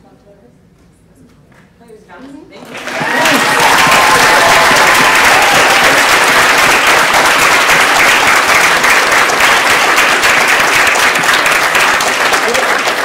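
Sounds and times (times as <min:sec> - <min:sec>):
audience applauding: 0:02.6 - 0:13.0.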